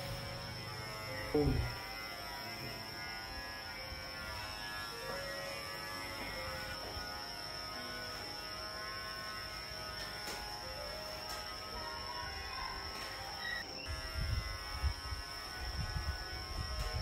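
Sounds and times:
electric hair clippers buzzing: 0.0 - 17.0.

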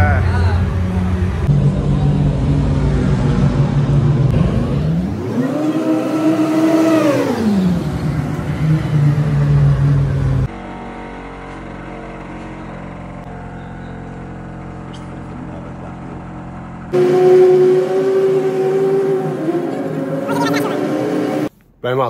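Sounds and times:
race car engine revving: 0.0 - 13.4, 14.4 - 21.5.

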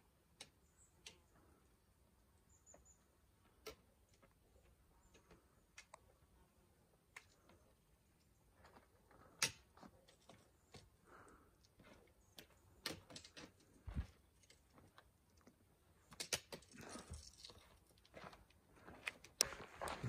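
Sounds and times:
trekking poles clicking on stone: 11.7 - 18.2
footsteps on rock: 16.7 - 20.0.

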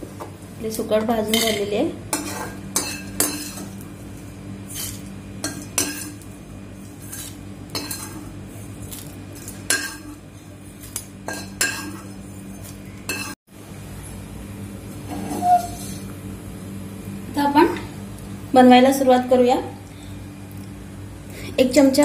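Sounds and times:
metal spoon scraping a pan: 1.3 - 3.8, 4.7 - 6.2, 7.0 - 8.3, 9.4 - 13.4, 15.1 - 16.1.

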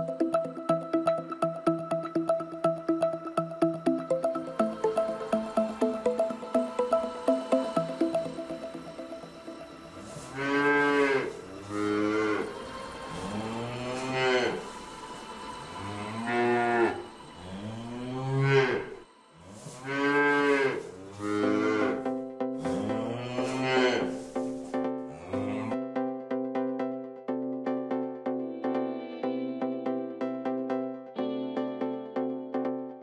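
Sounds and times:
cows mooing: 10.0 - 14.8, 15.8 - 22.1, 22.7 - 24.2.

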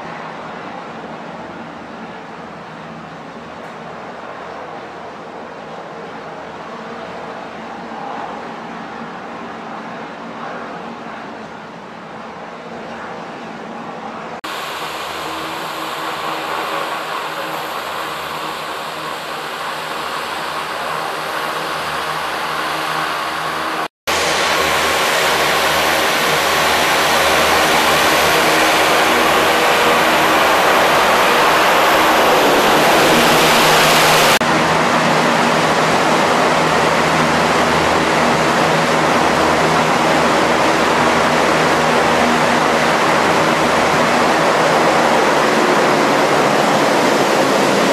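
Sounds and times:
hovercraft rushing noise with spray: 14.4 - 47.9.

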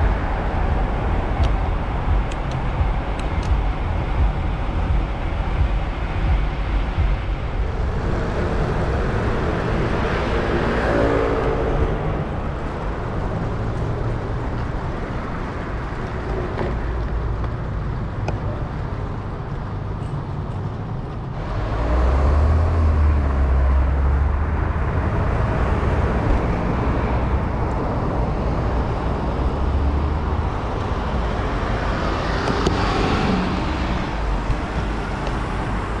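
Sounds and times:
deep engine vehicle passing: 0.0 - 17.4, 21.4 - 36.0
low traffic rumble: 0.0 - 36.0
vehicles passing close by: 0.0 - 36.0.

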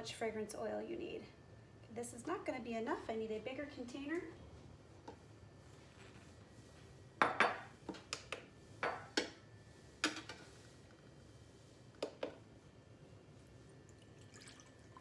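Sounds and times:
glass jug clinking: 14.1 - 15.0.

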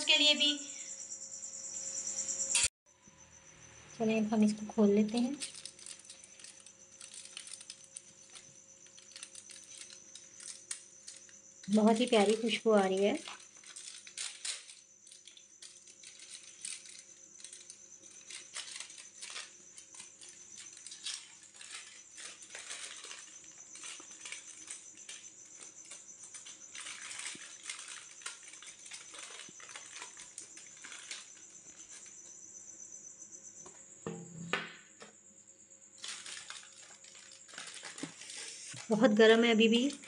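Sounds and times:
foil crinkling: 4.4 - 32.1, 36.0 - 40.0.

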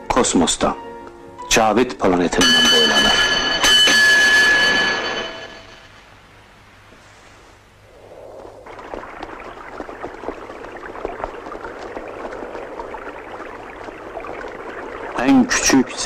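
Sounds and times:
rushing crackling noise: 5.8 - 16.0.

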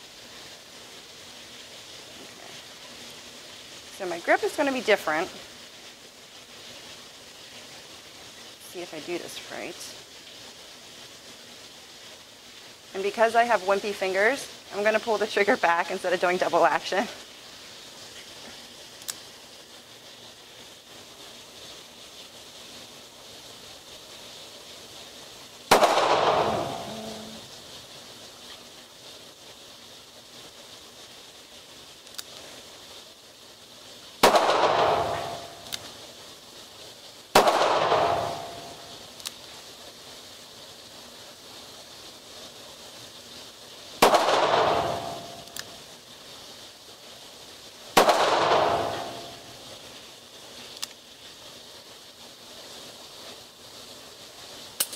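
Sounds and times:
revolver gunshots: 25.7 - 26.9, 34.2 - 35.6, 37.4 - 38.6, 44.0 - 45.4, 48.0 - 49.4.

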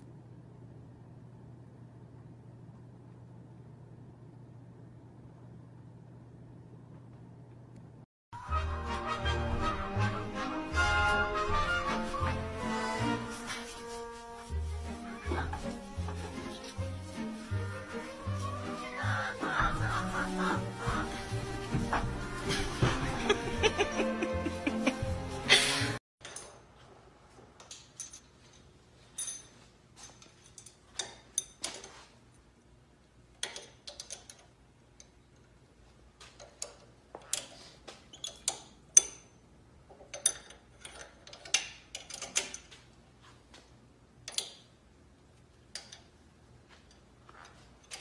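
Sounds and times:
music: 8.4 - 26.0.

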